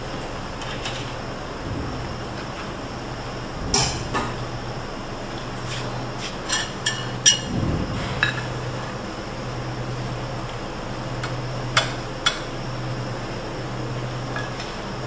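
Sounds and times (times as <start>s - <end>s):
steady low hum: 0.0s - 15.0s
utensils clinking on dishes: 6.4s - 7.5s.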